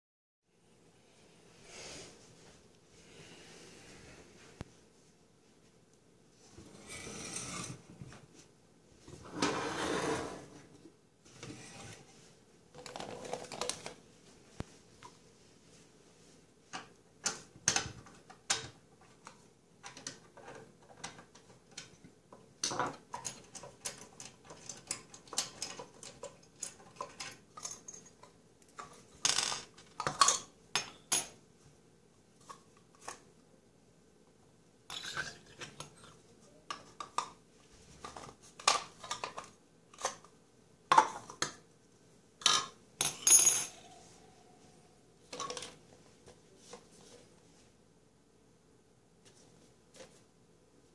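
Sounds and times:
small parts clinking on countertop: 42.4 - 43.8.

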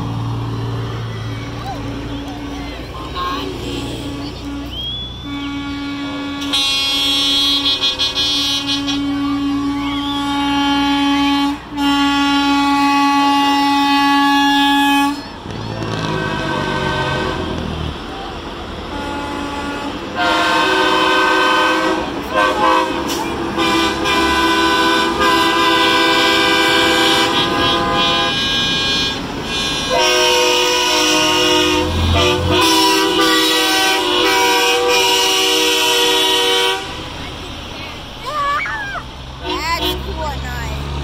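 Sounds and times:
low rumble of passing trucks: 0.0 - 41.0
truck air horns blasting: 1.9 - 18.1, 18.8 - 37.4, 39.3 - 41.0.

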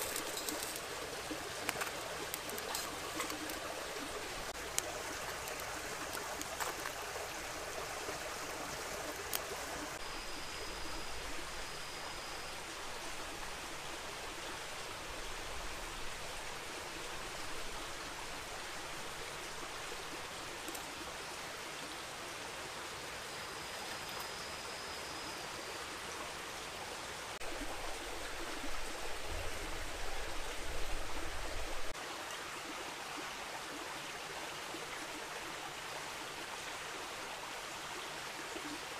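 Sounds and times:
stream rushing: 0.0 - 24.6.

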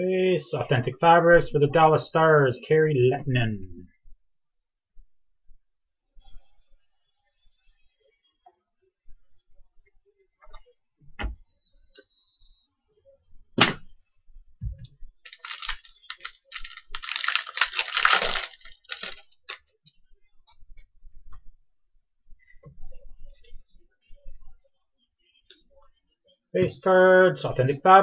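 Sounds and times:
wrapper crinkling and tearing: 15.2 - 19.7
sharp crack: 15.3 - 19.5.

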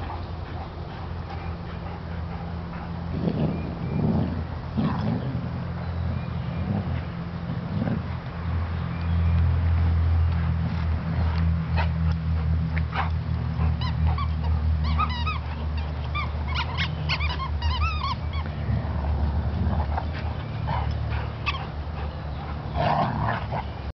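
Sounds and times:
low mechanical hum: 0.0 - 23.9
dogs whining and yipping: 12.9 - 18.9, 19.7 - 23.8.

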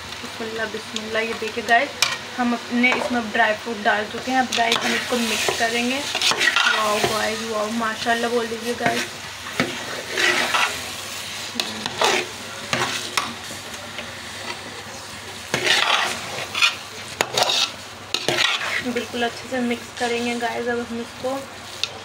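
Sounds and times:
metal spoon scraping a pot: 4.5 - 7.2, 8.8 - 10.8, 15.5 - 19.0.

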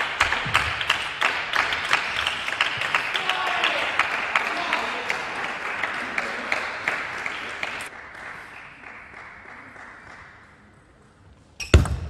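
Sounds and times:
spectators applauding: 0.0 - 10.6.

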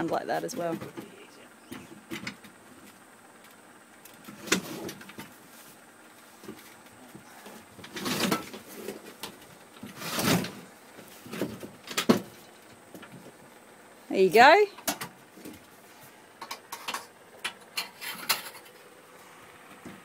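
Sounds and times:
metal scraping on rails: 17.8 - 18.8.

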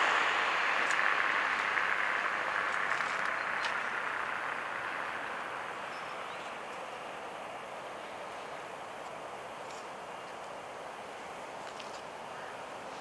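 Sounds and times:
tyre hiss of passing vehicle: 0.0 - 13.0.

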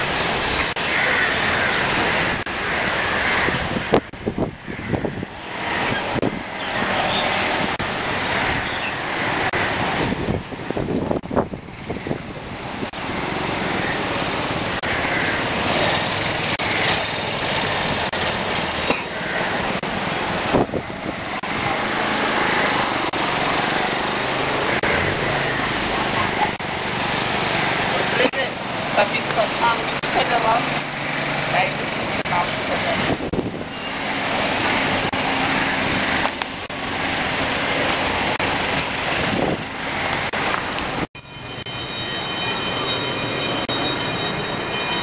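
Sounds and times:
cars running: 0.0 - 45.0
tyres on wet road: 0.0 - 45.0.

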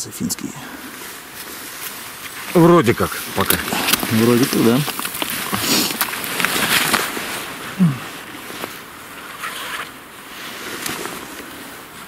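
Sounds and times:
rustling clothing and soil: 0.0 - 12.0
person grunting: 7.8 - 8.1.

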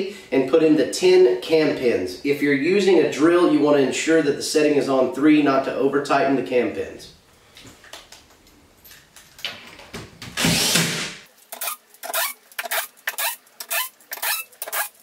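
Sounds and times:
cordless drill driving screws: 10.4 - 11.0.

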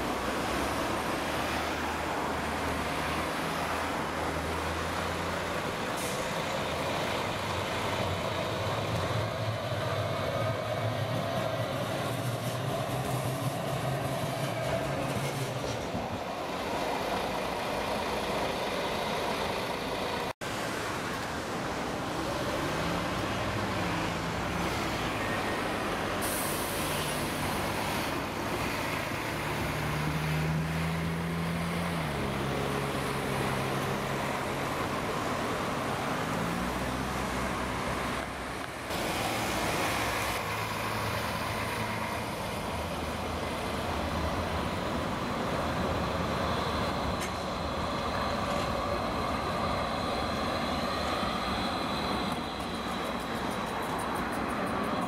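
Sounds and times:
buses driving past: 0.0 - 55.0
short sharp air hiss: 26.2 - 27.2.

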